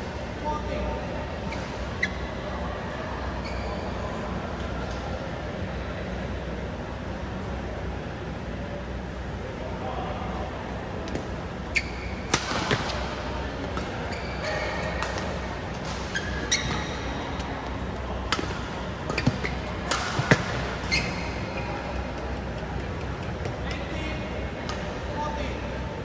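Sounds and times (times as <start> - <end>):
shoe squeaks: 1.4 - 2.4, 3.4 - 4.1, 11.7 - 12.3, 14.0 - 15.0, 16.0 - 17.4, 19.1 - 19.8, 20.5 - 22.1
rackets smacking shuttlecock: 12.2 - 17.6, 18.2 - 21.2.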